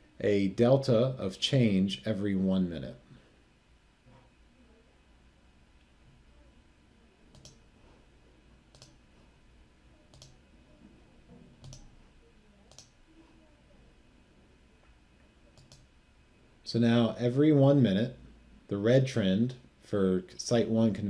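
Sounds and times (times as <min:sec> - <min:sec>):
faint room hiss: 0:00.0 - 0:21.0
computer mouse clicks: 0:07.3 - 0:07.6, 0:08.7 - 0:09.0, 0:10.1 - 0:10.4, 0:11.6 - 0:12.0, 0:12.7 - 0:13.0, 0:15.5 - 0:15.9.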